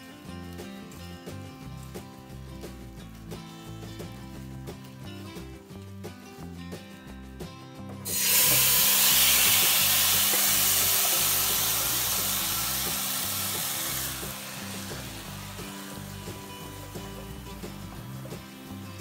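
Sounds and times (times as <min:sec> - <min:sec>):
background music: 0:00.0 - 0:19.0
coconut sizzling in frying pan: 0:08.0 - 0:19.0.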